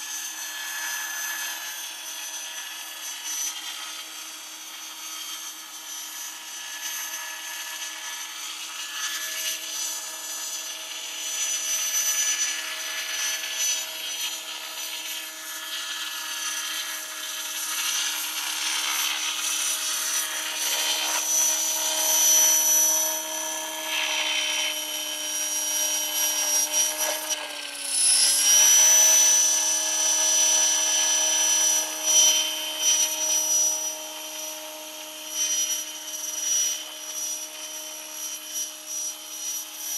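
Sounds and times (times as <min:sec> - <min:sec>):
model helicopter whining: 0:00.0 - 0:39.9.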